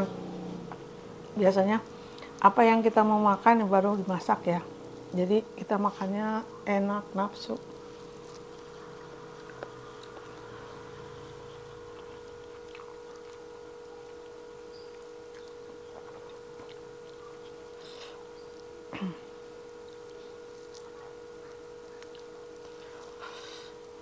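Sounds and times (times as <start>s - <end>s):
steady hum: 0.0s - 24.0s
faint chewing: 7.3s - 24.0s.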